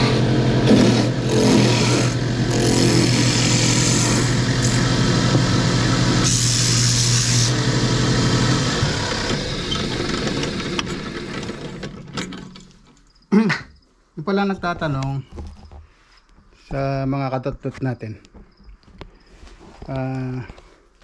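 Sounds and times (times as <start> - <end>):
power tool motor humming: 0.0 - 12.0.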